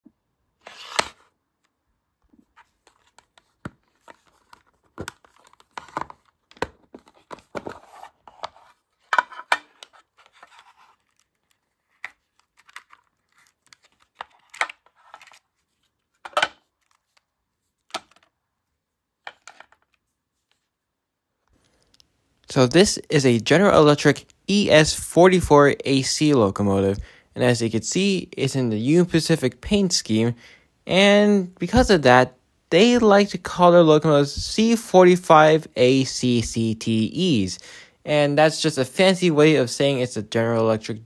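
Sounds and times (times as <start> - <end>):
packaging rustling and scraping: 2.4 - 17.2.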